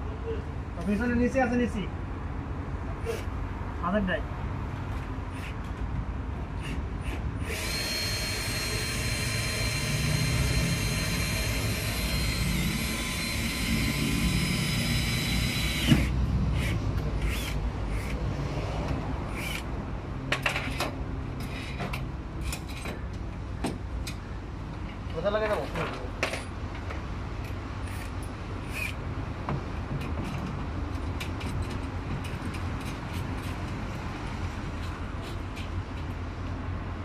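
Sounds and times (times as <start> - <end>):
power drill whining: 7.4 - 16.7.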